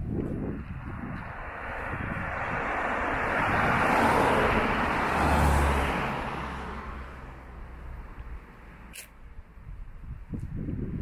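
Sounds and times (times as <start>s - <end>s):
car passing: 0.4s - 9.0s.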